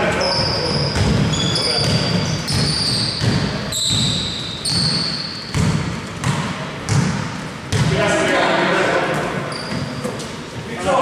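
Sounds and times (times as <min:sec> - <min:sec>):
shoe squeaks: 0:00.0 - 0:05.6, 0:09.2 - 0:10.6
basketball bouncing on hardwood: 0:00.9 - 0:07.9.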